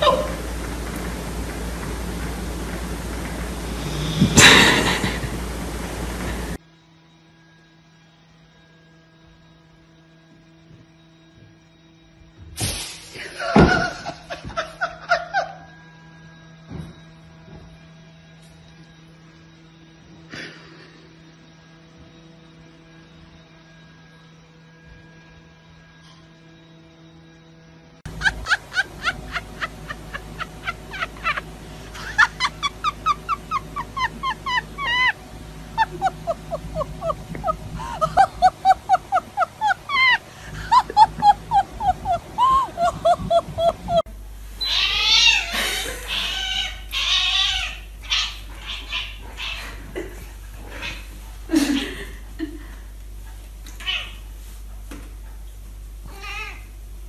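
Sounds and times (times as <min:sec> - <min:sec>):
dog whining: 0:00.0 - 0:00.6, 0:32.0 - 0:35.2, 0:35.8 - 0:44.0
faint hum: 0:00.0 - 0:57.0
cat meowing and chirping: 0:44.6 - 0:45.5, 0:46.1 - 0:49.8, 0:56.1 - 0:56.7.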